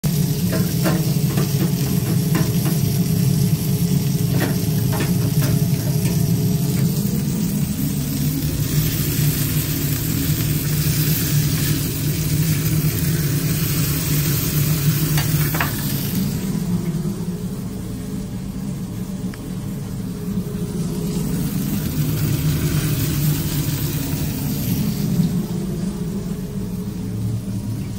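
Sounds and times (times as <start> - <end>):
patties sizzling on a griddle: 0.0 - 16.6, 20.8 - 25.4
oil bubbling in a deep fryer: 0.0 - 27.9
steady low drone: 3.1 - 27.9.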